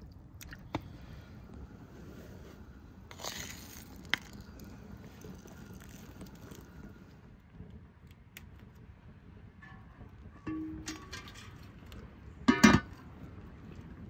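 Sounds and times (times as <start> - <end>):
low steady rumble: 0.0 - 14.0
peppercorns dropping into pot: 3.1 - 4.6.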